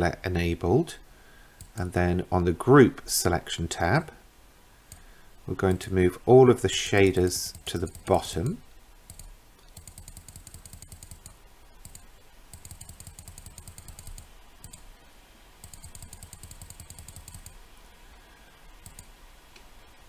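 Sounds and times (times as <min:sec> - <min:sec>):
mouse button clicking rapidly: 0:07.5 - 0:08.1, 0:09.1 - 0:14.8, 0:15.6 - 0:17.6.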